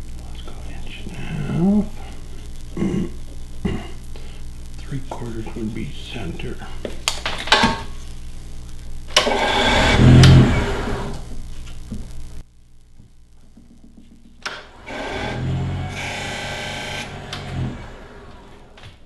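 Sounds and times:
wood lathe running: 0:09.2 - 0:11.3, 0:14.5 - 0:18.9.

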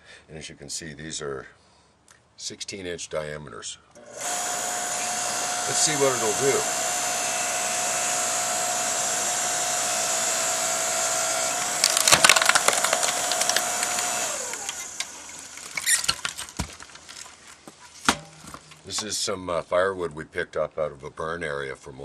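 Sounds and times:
log splitter motor whine: 0:04.0 - 0:17.2
wood cracking and splintering: 0:11.5 - 0:19.1.

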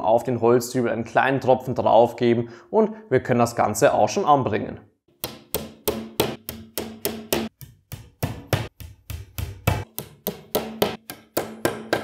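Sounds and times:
hammer tapping wooden dowels: 0:05.1 - 0:12.0.

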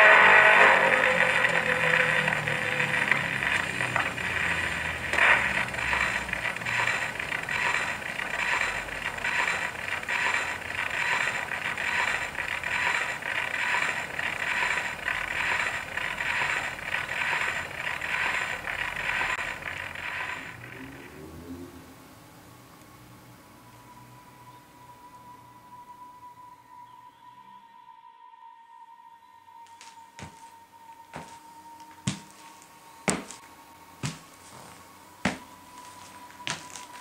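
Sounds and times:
gramophone music: 0:00.0 - 0:06.8.

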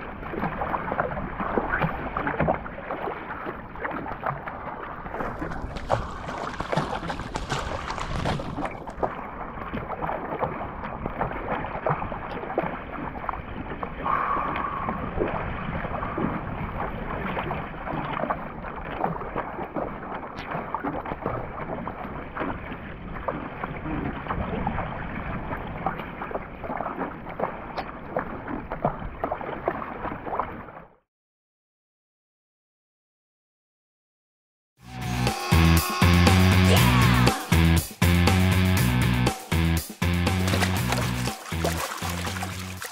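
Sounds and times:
paddle strokes splashing: 0:00.0 - 0:30.9, 0:40.3 - 0:42.9
water splashing against hull: 0:00.0 - 0:31.0, 0:39.3 - 0:42.9.

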